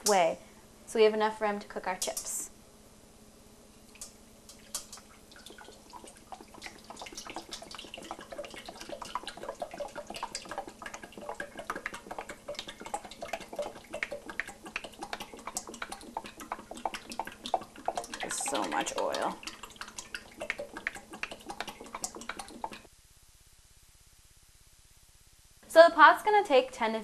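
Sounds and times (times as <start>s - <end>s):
oil pouring into a metal pan: 4.5s - 22.9s.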